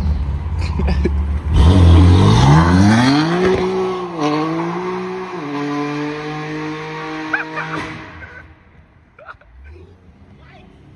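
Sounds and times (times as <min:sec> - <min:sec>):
car engine revving: 0:00.0 - 0:08.6.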